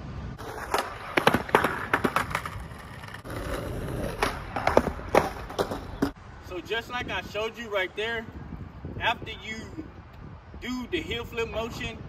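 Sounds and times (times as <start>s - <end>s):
skateboard rolling and scraping: 0.2s - 6.2s
skateboard clacking on pavement: 0.4s - 6.2s.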